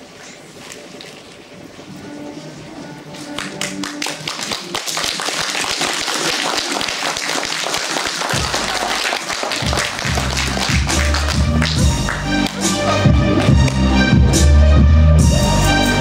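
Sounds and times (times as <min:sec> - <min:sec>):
music: 0:01.8 - 0:06.2, 0:08.2 - 0:16.0
audience applauding: 0:03.3 - 0:13.8.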